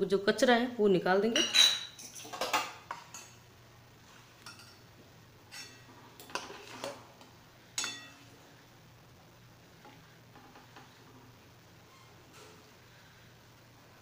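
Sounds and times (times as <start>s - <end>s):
metal spoon scraping a pan: 5.5s - 7.0s, 7.8s - 8.2s.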